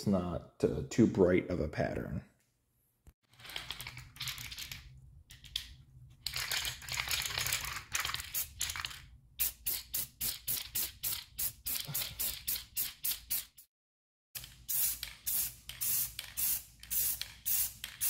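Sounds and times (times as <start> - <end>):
spray paint can hissing: 9.4 - 13.7, 14.4 - 18.0.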